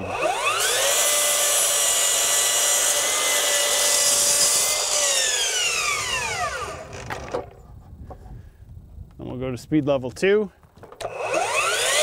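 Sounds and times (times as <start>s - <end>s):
saw blade cutting wood: 0.0s - 7.5s, 11.0s - 12.0s
miter saw motor whine: 0.0s - 7.6s, 11.0s - 12.0s.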